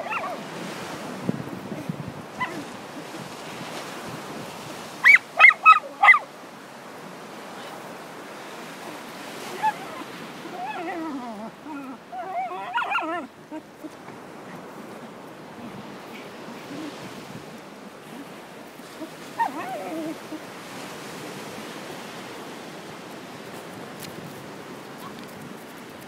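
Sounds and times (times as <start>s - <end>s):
dog barking: 0.0s - 0.4s, 2.4s - 2.6s, 5.0s - 6.3s, 12.3s - 13.3s
surf: 0.0s - 26.0s
wind: 0.0s - 26.0s
wavering whining cries: 9.5s - 13.6s.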